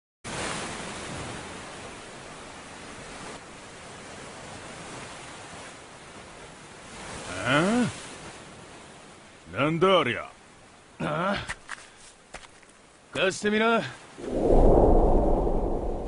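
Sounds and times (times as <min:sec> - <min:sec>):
sea surf rushing: 0:14.2 - 0:16.0.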